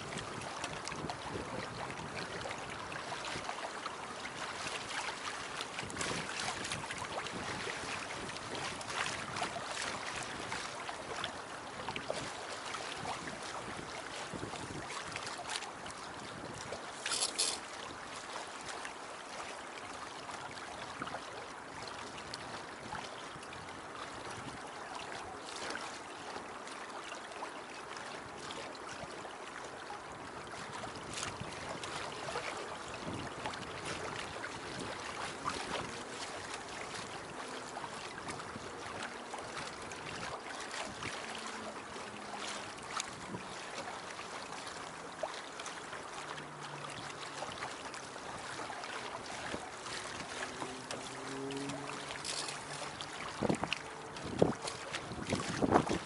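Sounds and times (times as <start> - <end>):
wind on microphone: 0.0 - 3.5, 5.7 - 10.6, 11.8 - 15.3, 16.2 - 18.0, 30.6 - 37.1, 49.4 - 56.0
water rushing along boat hull: 0.0 - 56.0.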